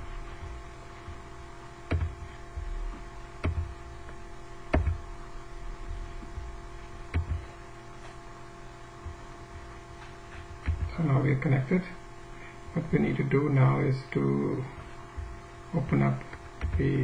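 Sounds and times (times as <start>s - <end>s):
steady electrical hum: 0.0s - 17.0s
sharp clicks: 3.4s - 3.7s.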